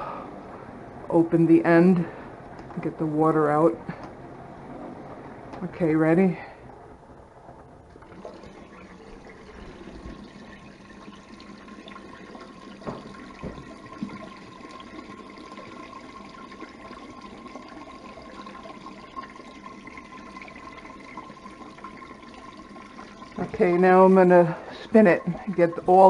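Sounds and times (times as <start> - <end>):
water draining into a sink: 6.4 - 26.0.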